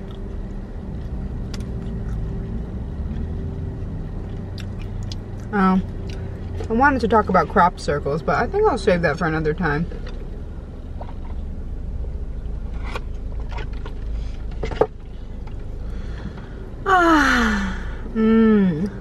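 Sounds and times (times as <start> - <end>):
low steady hum: 0.0 - 19.0
woman gasping exclamation: 16.9 - 18.0.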